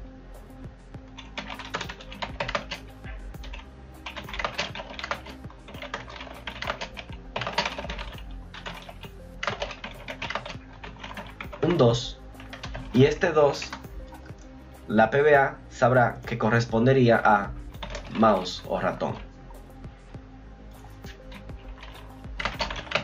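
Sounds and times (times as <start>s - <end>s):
typing on a keyboard: 1.2s - 11.8s, 12.4s - 13.0s, 17.8s - 18.2s, 21.3s - 23.0s.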